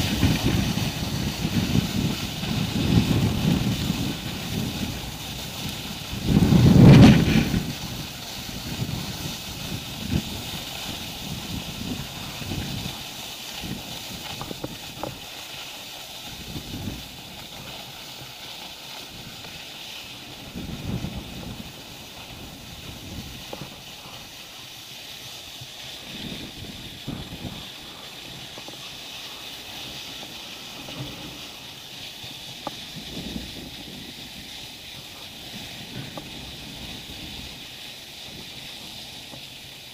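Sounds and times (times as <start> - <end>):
wind buffeting microphone: 0.0 - 15.3, 16.2 - 17.8, 19.0 - 24.4, 25.5 - 28.9, 29.5 - 39.0
skis sliding on packed snow: 0.0 - 39.9.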